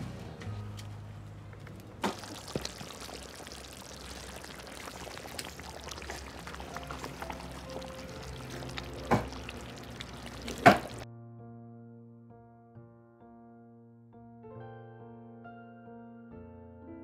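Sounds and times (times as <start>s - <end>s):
thick liquid sloshing: 1.7s - 11.0s.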